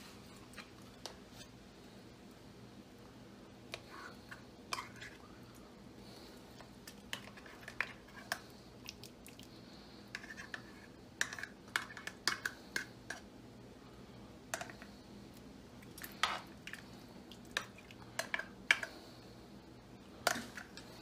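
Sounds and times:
utensil scraping in pot: 3.7 - 5.2, 6.9 - 8.4, 10.0 - 13.2.

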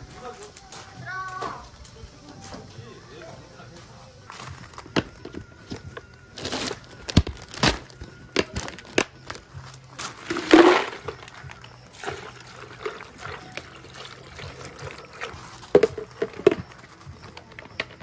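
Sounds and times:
ice clattering into a jug: 6.4 - 18.0
jug knocks: 10.2 - 11.3, 12.0 - 18.0
water pouring into a jug: 10.2 - 16.9.

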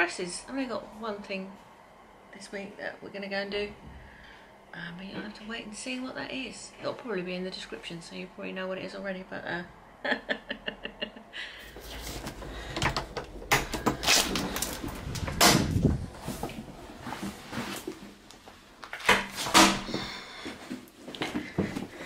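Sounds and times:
door opening and shutting: 11.8 - 16.0, 19.0 - 20.0.

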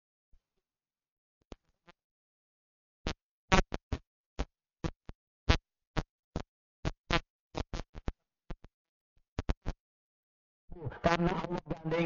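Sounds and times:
audio crackles: 3.5 - 8.7, 9.4 - 9.8, 10.8 - 12.0
voice fragments: 10.7 - 12.0.

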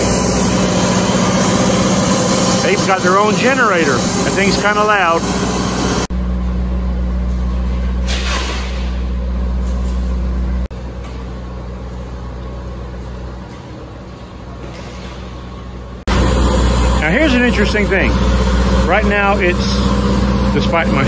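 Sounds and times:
generator engine droning: 0.0 - 21.0.

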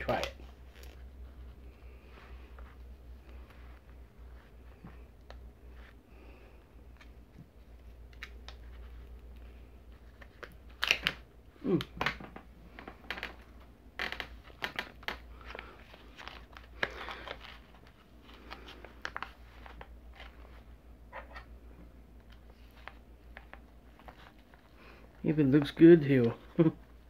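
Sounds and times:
plastic packaging crinkling and tearing: 10.0 - 11.8, 14.0 - 20.4.

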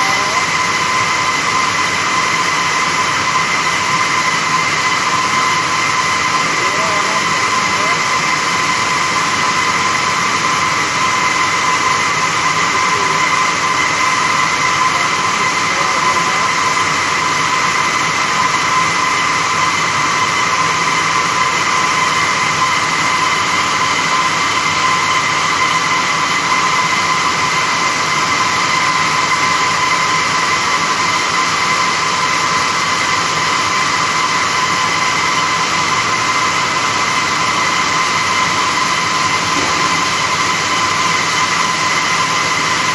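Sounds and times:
high machine whine: 0.0 - 42.9
looms mechanical din: 34.8 - 42.9.

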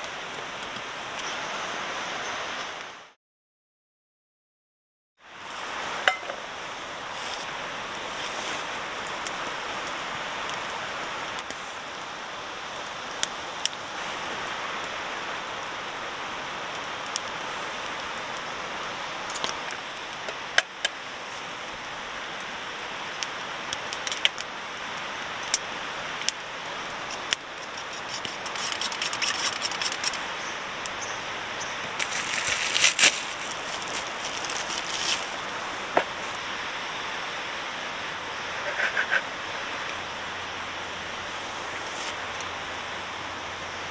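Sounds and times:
river rushing: 0.0 - 3.2, 5.2 - 43.9
sharp clicks and crackles: 19.3 - 21.0, 23.2 - 24.5, 25.4 - 30.2.

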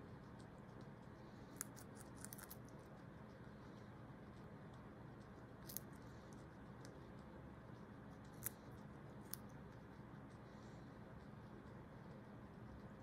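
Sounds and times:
faint chewing: 0.0 - 13.0
guinea pigs crunching carrot: 0.0 - 13.0.

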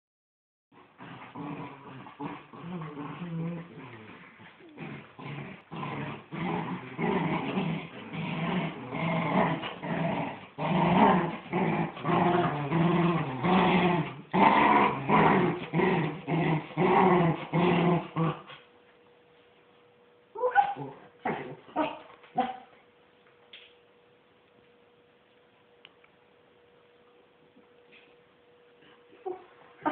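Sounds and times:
dogs growling in play: 0.7 - 18.7, 20.4 - 22.7, 28.8 - 29.9.

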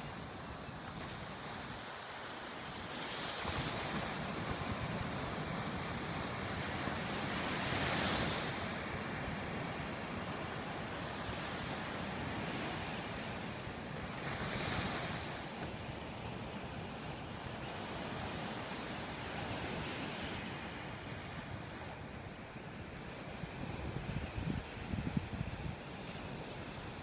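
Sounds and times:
wind rumble on microphone: 19.2 - 27.0.

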